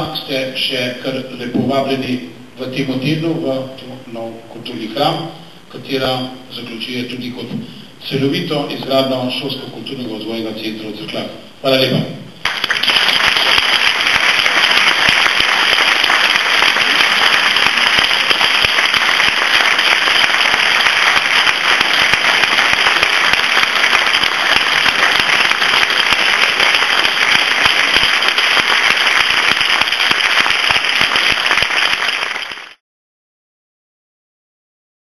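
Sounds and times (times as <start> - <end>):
audience applauding: 12.4 - 32.8.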